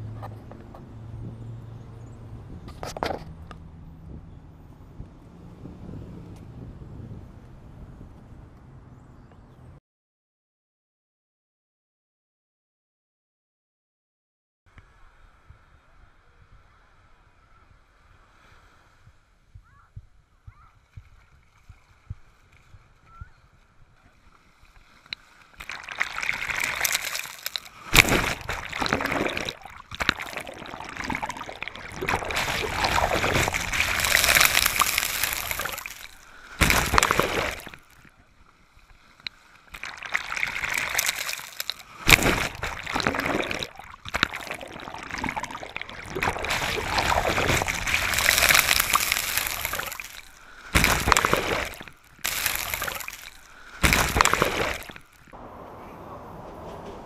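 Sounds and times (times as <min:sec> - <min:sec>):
water splashes: 0:24.1 - 0:55.4
ocean surf washing: 0:25.0 - 0:37.9, 0:39.4 - 0:57.0.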